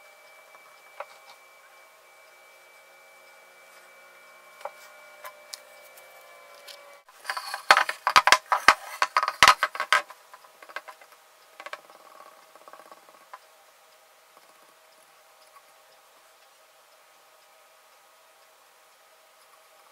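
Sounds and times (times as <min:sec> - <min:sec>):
faint hum: 0:00.0 - 0:19.9
clay mask clattering on table: 0:07.2 - 0:11.8.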